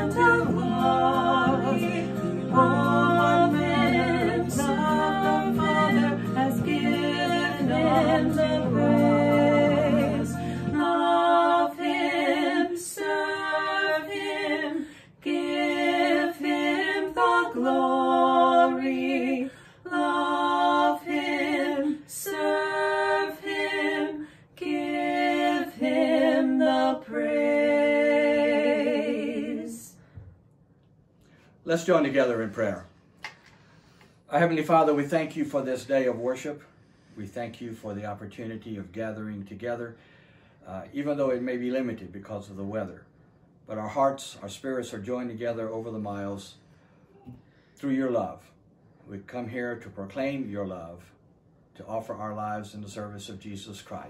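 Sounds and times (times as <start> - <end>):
low backing part: 0.0 - 14.6
women singing a hymn duet: 0.0 - 30.3.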